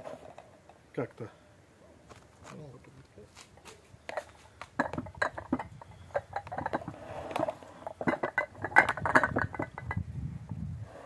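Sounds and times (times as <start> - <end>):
ceramic pots clinking: 4.1 - 10.1.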